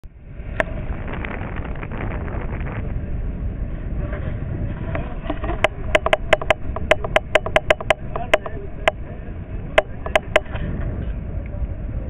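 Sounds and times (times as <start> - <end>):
boat engine rumble: 0.0 - 12.0
sharp evenly spaced taps: 5.6 - 9.0, 9.8 - 10.5.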